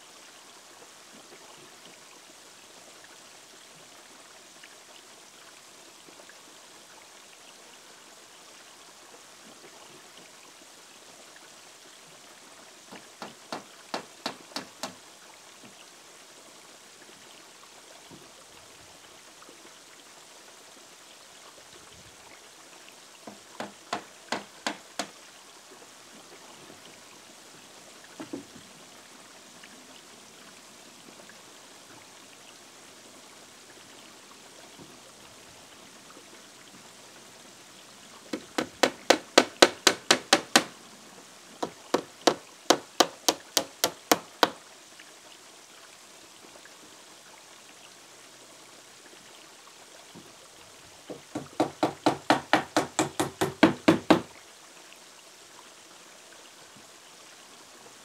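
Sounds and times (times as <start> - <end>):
trickling water: 0.0 - 58.0
hammer driving nails into wood: 12.9 - 15.0, 23.3 - 25.2, 38.4 - 40.8, 41.6 - 44.6, 51.2 - 54.3.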